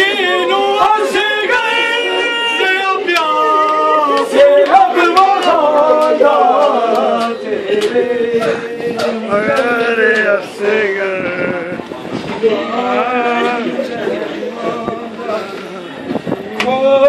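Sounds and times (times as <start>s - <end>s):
man chanting a lament: 0.0s - 17.0s.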